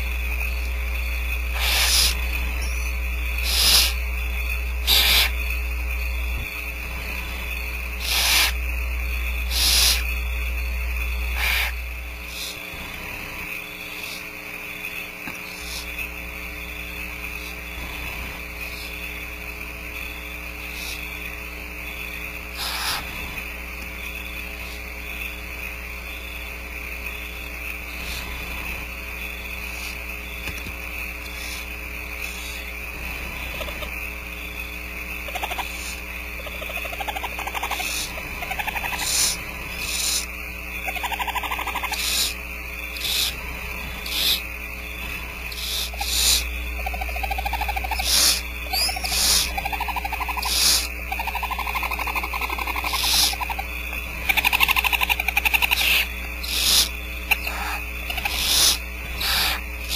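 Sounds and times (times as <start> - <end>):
electrical hum and whine: 0.0 - 59.9
owls hissing: 1.4 - 4.1, 4.8 - 5.5, 6.8 - 8.7, 9.4 - 10.2, 11.3 - 16.1, 17.3 - 19.2, 20.0 - 21.3, 22.4 - 23.5, 27.8 - 28.9, 29.5 - 30.0, 31.2 - 34.0, 35.2 - 59.9
soft wavering owl calls: 1.4 - 4.1, 4.7 - 5.6, 7.1 - 8.7, 9.3 - 10.3, 11.0 - 16.1, 17.3 - 19.2, 20.0 - 21.3, 21.9 - 23.4, 31.2 - 34.0, 35.2 - 59.9.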